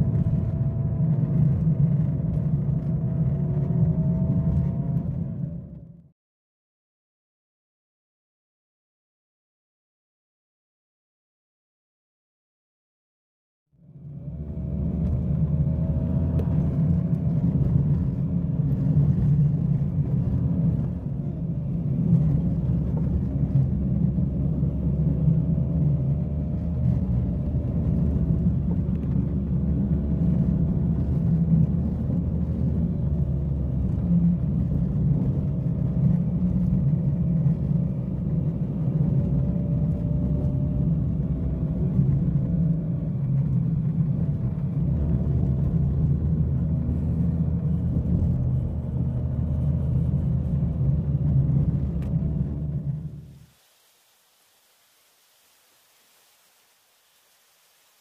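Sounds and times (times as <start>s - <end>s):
tyres rumbling on dirt road: 0.0s - 6.0s, 14.0s - 53.6s
car engine running: 13.9s - 53.5s.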